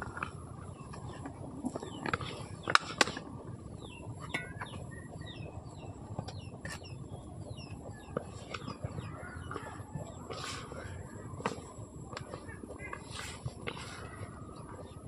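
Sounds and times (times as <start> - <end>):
low background noise: 0.0 - 15.0
small birds chirping: 0.0 - 15.0.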